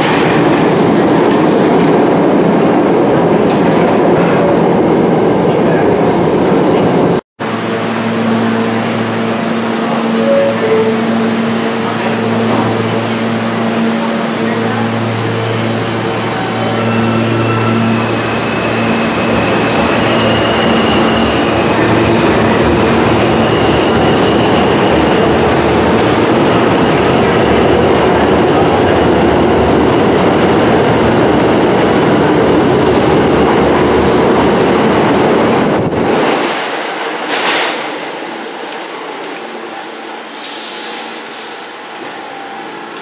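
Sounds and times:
subway train rumbling: 0.0 - 43.0
high wheel squeal: 16.5 - 21.9.

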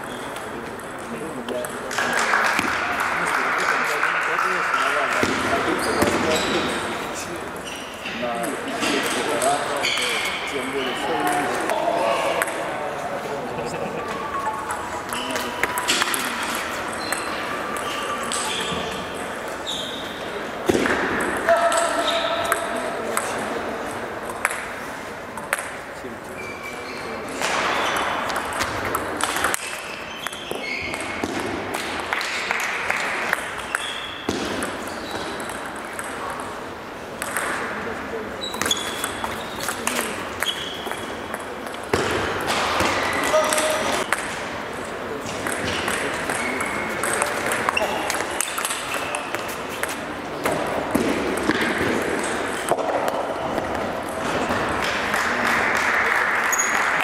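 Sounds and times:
table tennis balls clicking: 0.0 - 3.9, 11.2 - 12.8, 14.0 - 20.1, 20.7 - 25.8, 27.4 - 55.2
indoor hall ambience: 0.0 - 57.0
applause: 1.9 - 5.2, 54.8 - 57.0
short high squeaks: 19.6 - 20.2, 26.3 - 27.2, 38.4 - 39.8, 40.4 - 41.2
table tennis ball clicks: 24.2 - 24.7, 28.3 - 36.5, 37.2 - 37.7, 45.4 - 54.2.

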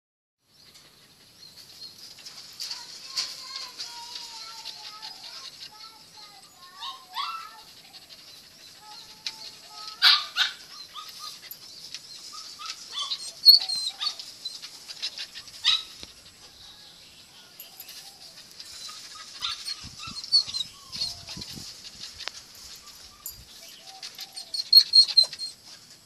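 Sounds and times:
dog barking and yipping: 6.7 - 16.6, 18.4 - 22.2, 24.3 - 25.6.

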